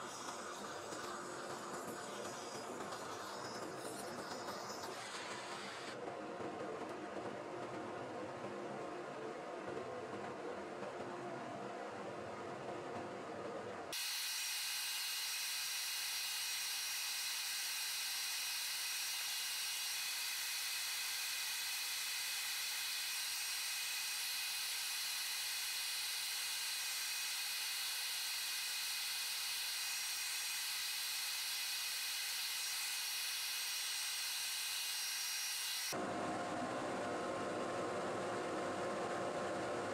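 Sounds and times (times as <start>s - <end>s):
high-pitched steady hiss: 14.0s - 36.0s.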